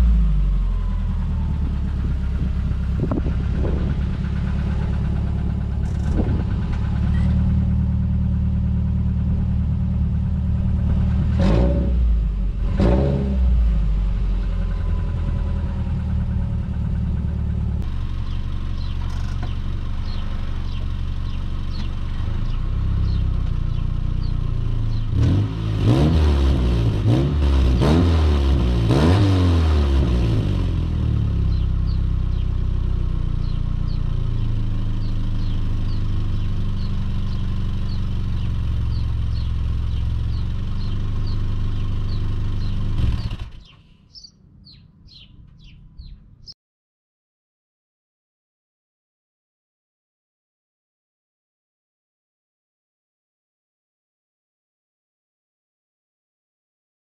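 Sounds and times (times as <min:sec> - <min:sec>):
car engine idling: 0:00.0 - 0:11.4, 0:13.6 - 0:25.2, 0:29.9 - 0:46.5
car engine revving: 0:01.8 - 0:31.6, 0:36.8 - 0:46.1.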